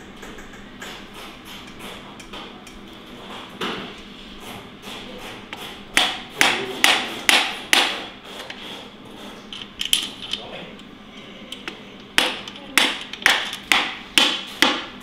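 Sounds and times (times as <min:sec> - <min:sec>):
hammer strikes: 0:04.4 - 0:08.8, 0:12.2 - 0:15.0.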